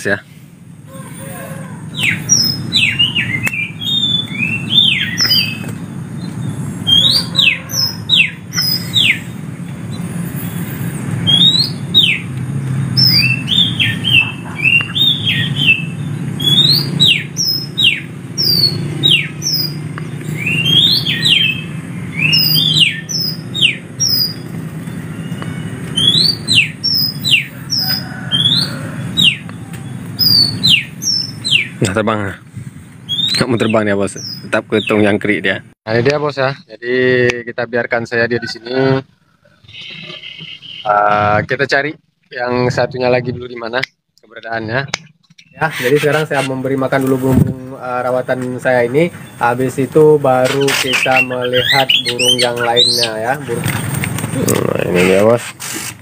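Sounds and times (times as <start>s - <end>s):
songbird whistling: 1.2s - 12.3s, 12.9s - 31.8s, 33.0s - 35.0s, 39.7s - 40.9s, 50.5s - 53.3s.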